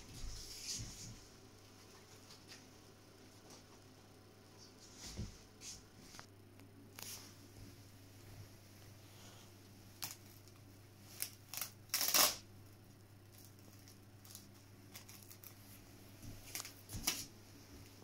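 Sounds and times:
velcro strap ripping: 11.1 - 12.4.

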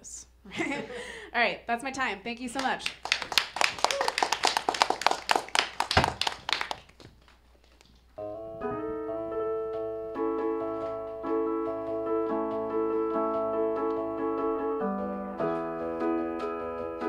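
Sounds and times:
audience clapping: 2.6 - 7.9
electric piano chords: 8.2 - 17.0.

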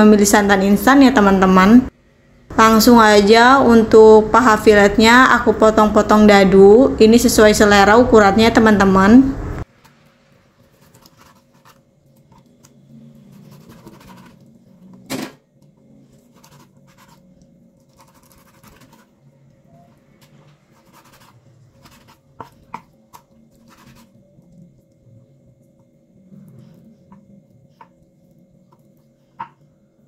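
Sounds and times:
knife cutting meat on board: 20.7 - 24.1.

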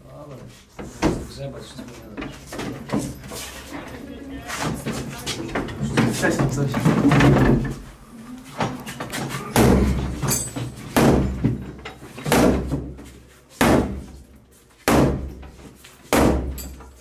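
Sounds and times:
sledgehammer striking crowbar: 9.5 - 11.6, 12.2 - 12.9, 13.6 - 14.2, 14.8 - 15.4, 16.1 - 16.8.

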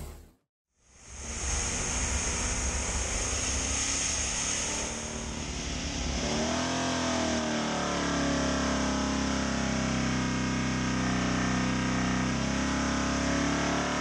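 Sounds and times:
race engine running: 0.9 - 14.0
rising and falling pitched tones: 1.1 - 9.9.

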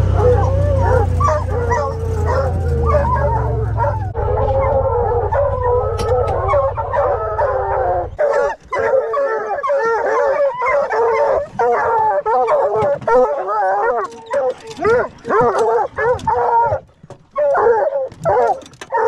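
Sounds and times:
vehicle engine idling: 0.0 - 8.2
hounds bawling and howling: 0.0 - 19.0.

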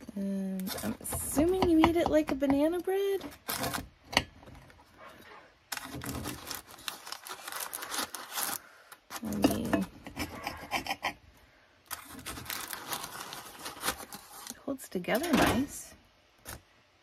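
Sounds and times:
knife sawing through bread crust: 10.1 - 11.2.

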